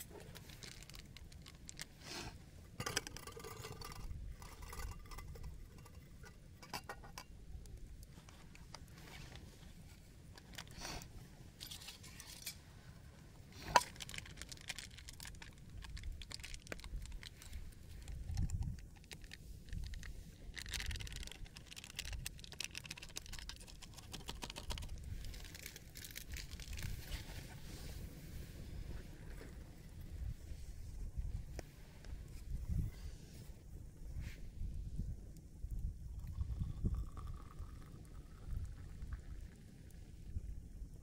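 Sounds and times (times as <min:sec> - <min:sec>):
rustling: 0:00.0 - 0:06.4
packet crinkling being torn: 0:00.3 - 0:01.9, 0:13.8 - 0:17.5, 0:18.3 - 0:26.9.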